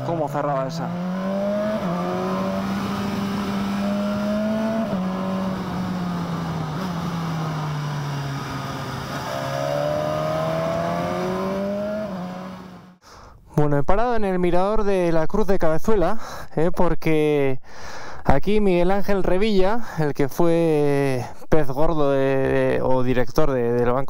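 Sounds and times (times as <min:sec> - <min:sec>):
motorcycle engine running: 0:00.9 - 0:13.0.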